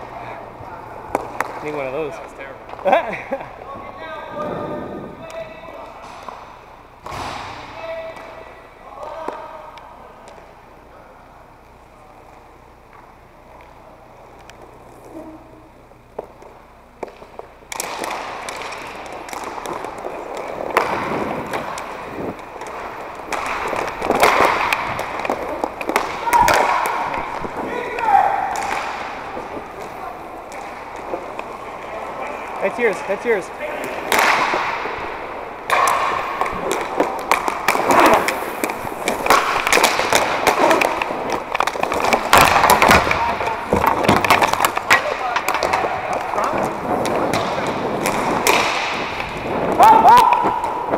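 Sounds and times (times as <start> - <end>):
skate wheels rolling on plastic floor: 0.0 - 6.7, 12.2 - 50.9
sticks and ball clacking: 1.1 - 3.0, 16.1 - 50.9.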